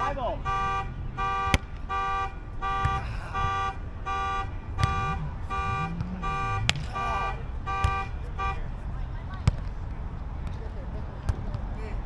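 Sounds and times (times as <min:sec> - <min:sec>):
alarm beeping: 0:00.0 - 0:08.6
hand slapping volleyball: 0:01.4 - 0:02.0, 0:02.8 - 0:03.1, 0:04.8 - 0:05.3, 0:05.9 - 0:07.0.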